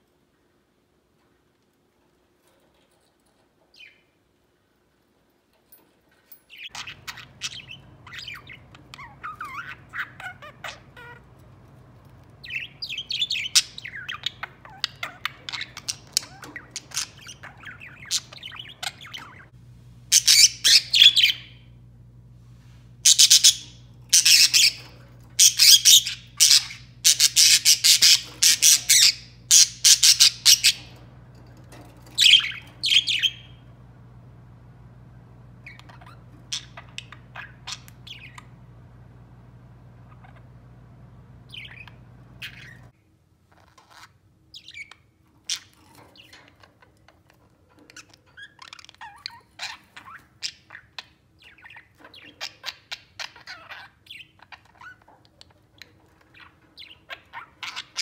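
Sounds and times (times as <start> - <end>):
budgerigars chirping and warbling: 6.6 - 19.5, 20.1 - 21.8, 23.0 - 33.8, 35.5 - 39.0, 39.9 - 42.9, 43.6 - 46.9, 47.8 - 58.0.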